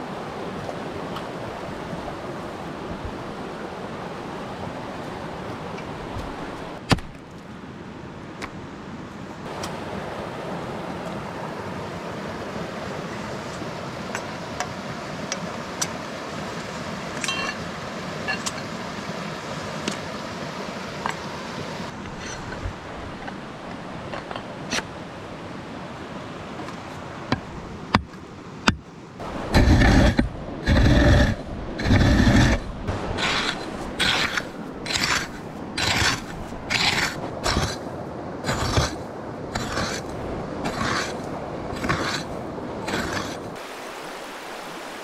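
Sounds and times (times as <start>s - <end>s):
mountain stream rushing: 0.0s - 45.0s
shovel knocking stony ground: 29.5s - 37.8s.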